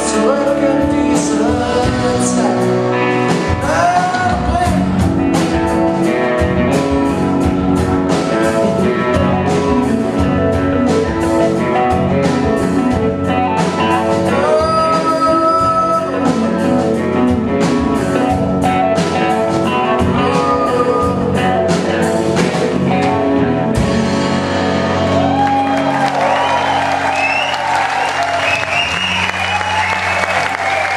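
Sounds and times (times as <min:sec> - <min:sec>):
man singing: 0:00.0 - 0:06.1, 0:08.1 - 0:12.6, 0:13.2 - 0:24.4
steady drum beat: 0:00.0 - 0:24.4
acoustic guitar: 0:00.0 - 0:27.8
keyboard: 0:00.0 - 0:30.9.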